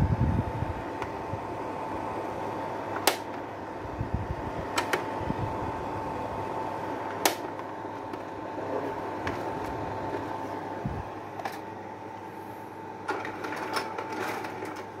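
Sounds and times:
projector fan whirring: 0.0 - 15.0
projector clicks: 3.0 - 3.4, 7.1 - 7.7.

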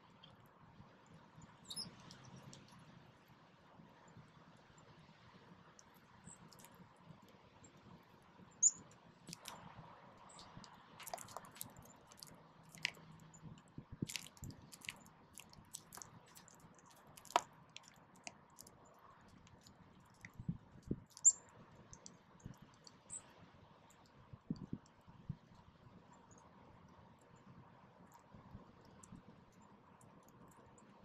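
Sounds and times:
high bird chirps: 1.6 - 2.3, 8.6 - 8.8
beaks tapping on seed: 10.3 - 13.2, 14.0 - 23.0.

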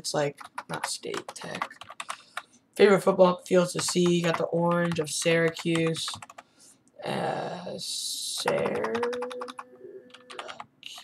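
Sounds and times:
keyboard keys tapping: 0.3 - 2.4, 3.7 - 6.4, 8.4 - 11.0
person muttering: 7.0 - 11.0.

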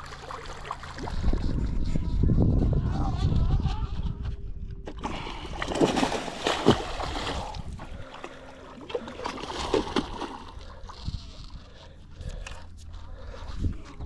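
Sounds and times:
fish thrashing and splashing: 5.0 - 11.2.

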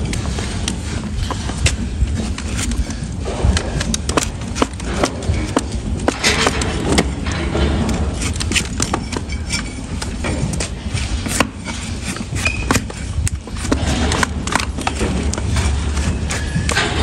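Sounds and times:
blade scraping hoof horn: 4.2 - 17.0.

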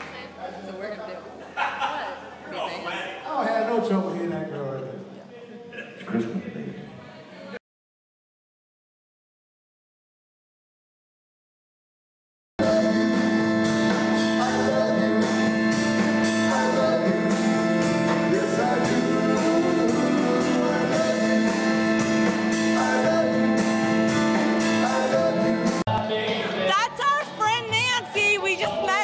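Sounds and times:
person singing: 12.6 - 26.9
drums keeping a steady beat: 12.6 - 29.0
electric guitars: 12.6 - 29.0.

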